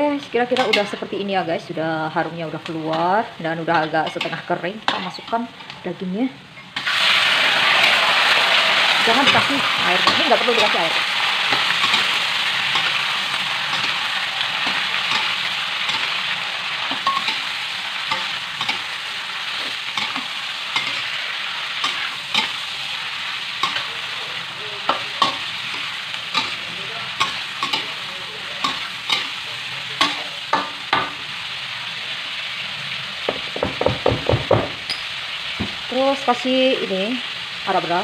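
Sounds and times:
food sizzling in oil: 0:00.0 - 0:38.0
metal spatula scraping a pan: 0:06.6 - 0:29.4.

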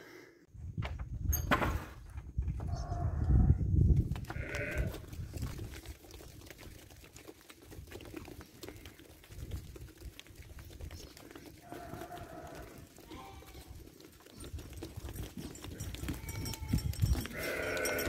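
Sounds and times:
hooves clicking on dirt: 0:02.1 - 0:18.0
sheep bleating: 0:04.3 - 0:05.0, 0:11.6 - 0:13.8, 0:16.2 - 0:18.0.

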